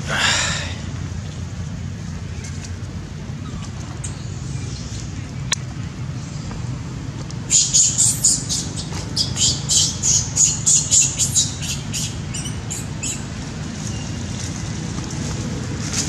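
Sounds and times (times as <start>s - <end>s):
steady low rumble: 0.0s - 16.0s
high-pitched chirping animal calls: 7.5s - 13.2s.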